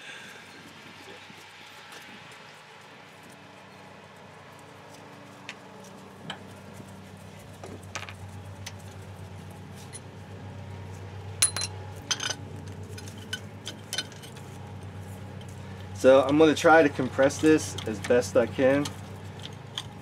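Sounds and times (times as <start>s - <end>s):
low steady hum: 0.0s - 20.0s
metal tools clinking: 11.4s - 14.5s.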